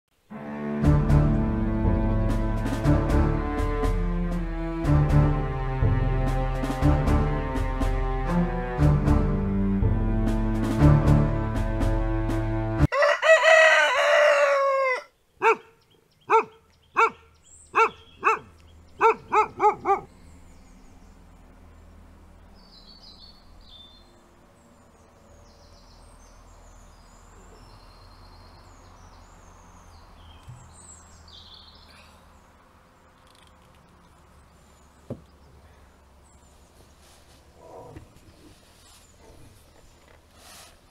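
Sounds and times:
music: 0.2 - 12.9
rooster crowing: 12.9 - 15.1
faint distant birdsong: 12.9 - 40.9.

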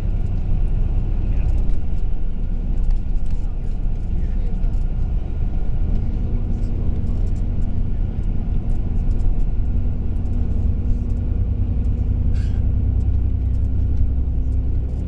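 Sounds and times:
engine and road noise rumble: 0.0 - 15.0.

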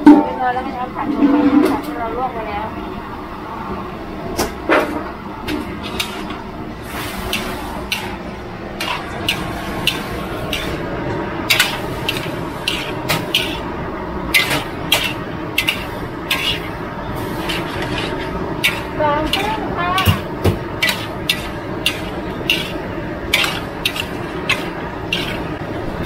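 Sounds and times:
frying hiss: 5.3 - 26.0
metal spatula scraping wok: 5.4 - 26.0.

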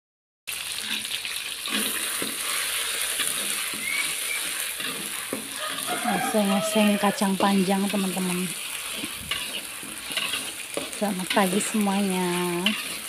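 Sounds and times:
spice paste sizzling in oil: 0.5 - 13.0
metal spatula scraping wok: 0.7 - 13.0.

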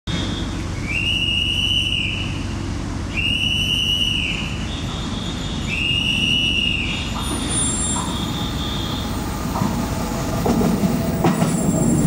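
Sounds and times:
long high whistle tones: 0.8 - 10.3.

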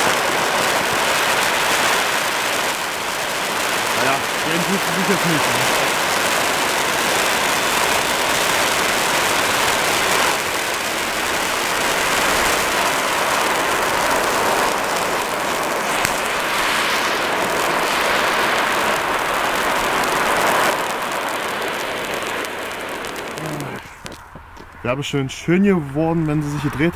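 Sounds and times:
fountain firework hissing sparks: 0.0 - 24.8
sharp crack: 0.0 - 26.9.

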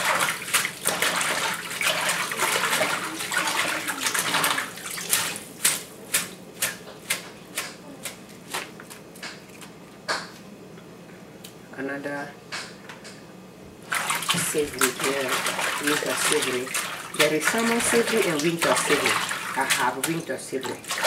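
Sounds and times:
splashes and drips: 0.0 - 7.3, 13.8 - 21.0.

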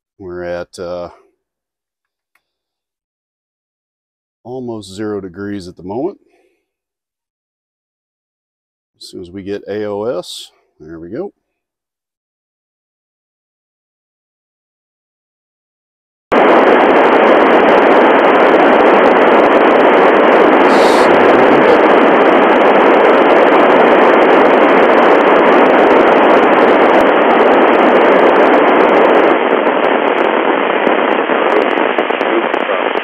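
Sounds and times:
radio static hiss: 4.5 - 6.3, 9.0 - 11.3, 16.3 - 33.0.

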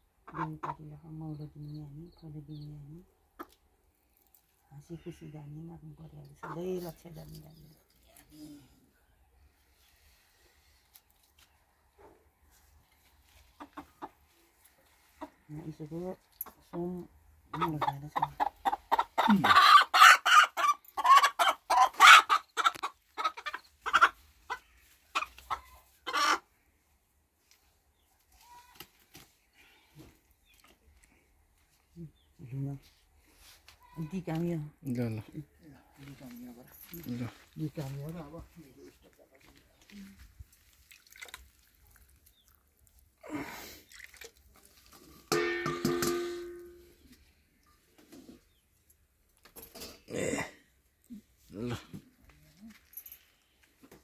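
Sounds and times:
chicken squawking and clucking: 17.5 - 26.5.

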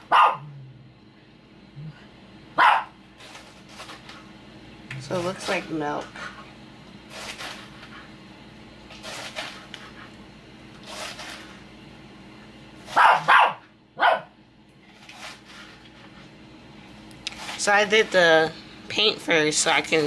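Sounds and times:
dog barking: 0.0 - 0.5, 2.6 - 3.0, 12.9 - 14.4.

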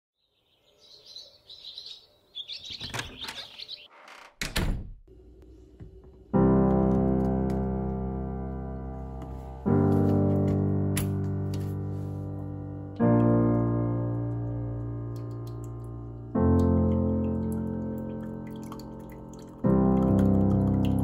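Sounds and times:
bird chirps: 0.2 - 4.0
sustained piano chord: 6.3 - 21.0.

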